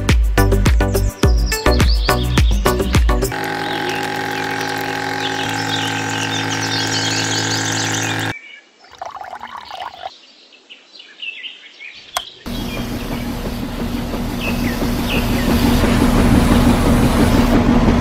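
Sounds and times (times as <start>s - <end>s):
birds chirping: 1.3s - 16.6s
cement mixer motor hum: 3.3s - 8.4s, 12.5s - 18.0s
water pump motor hum: 3.3s - 10.1s, 12.5s - 18.0s
faint water pouring: 8.8s - 10.1s.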